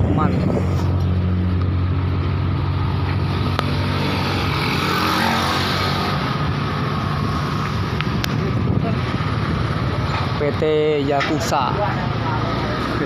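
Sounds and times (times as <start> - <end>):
truck engine humming: 0.0 - 4.9.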